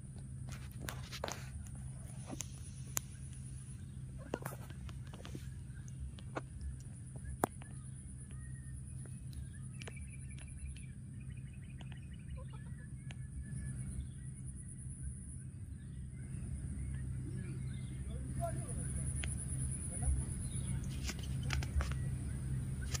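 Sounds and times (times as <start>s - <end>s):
high insect drone: 0.0s - 23.0s
low steady hum: 0.0s - 23.0s.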